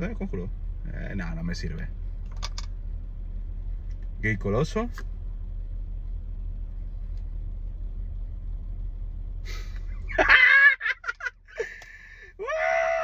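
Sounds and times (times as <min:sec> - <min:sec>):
low rumble of road vehicles: 0:00.0 - 0:13.0
loud vocal exclamation: 0:12.4 - 0:13.0.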